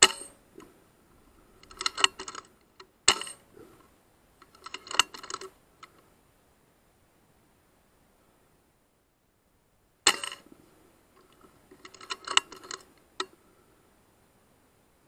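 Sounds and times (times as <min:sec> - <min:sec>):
metallic clicks of rifle action: 0:00.0 - 0:00.7, 0:01.6 - 0:03.5, 0:04.4 - 0:06.0, 0:10.1 - 0:10.5, 0:11.2 - 0:13.4.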